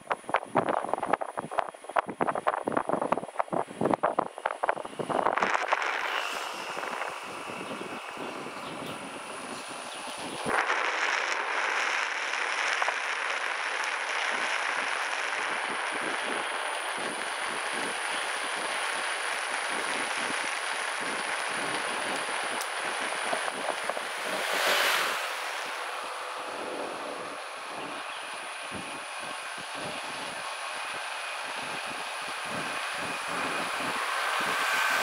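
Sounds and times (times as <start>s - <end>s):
wind on microphone: 0.0s - 35.0s
motor scooter passing: 5.7s - 10.5s, 20.9s - 35.0s.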